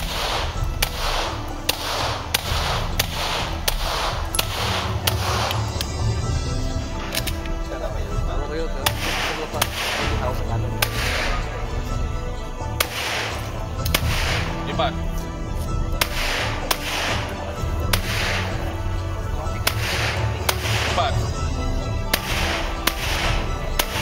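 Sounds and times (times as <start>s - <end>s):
pistol shots with echo: 0.0s - 6.1s, 8.8s - 11.6s, 12.8s - 14.8s, 15.9s - 18.8s, 19.6s - 21.2s, 22.0s - 24.0s
quiet music: 0.0s - 24.0s.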